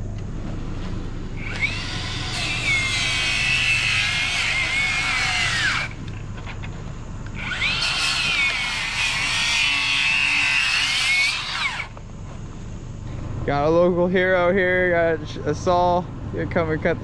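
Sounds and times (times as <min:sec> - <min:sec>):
circular saw cutting wood: 0:01.4 - 0:06.0, 0:07.3 - 0:12.0.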